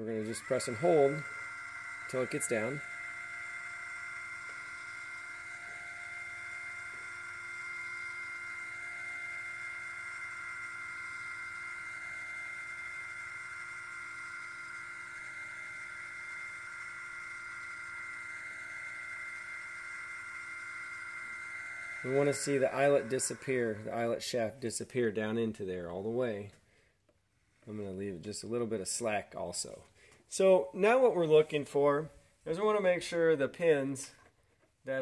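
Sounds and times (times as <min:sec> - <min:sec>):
small winch motor whining: 0:00.0 - 0:24.6.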